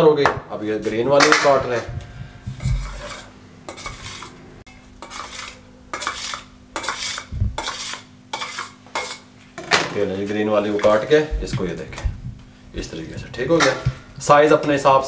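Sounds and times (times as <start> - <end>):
knife scraping metal plate: 2.5 - 9.3.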